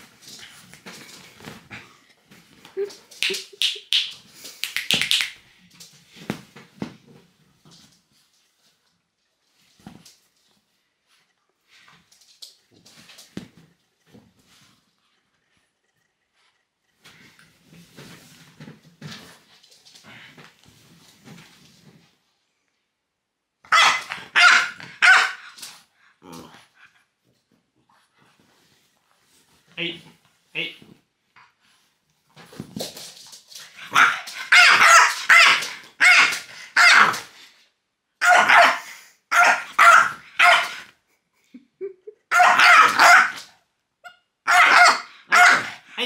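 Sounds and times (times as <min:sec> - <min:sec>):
dog barking: 0:23.7 - 0:25.5, 0:33.9 - 0:37.2, 0:38.2 - 0:40.8, 0:42.3 - 0:43.5, 0:44.4 - 0:45.9.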